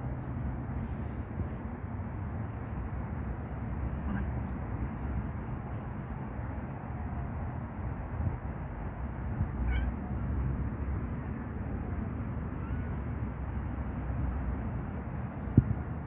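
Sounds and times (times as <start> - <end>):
steady low rumble: 0.0 - 16.0
cat meowing: 9.6 - 10.2, 12.5 - 13.0.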